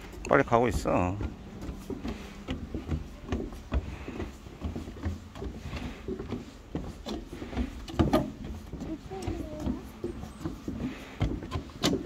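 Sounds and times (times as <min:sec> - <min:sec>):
footsteps on wooden boards: 0:00.0 - 0:12.0.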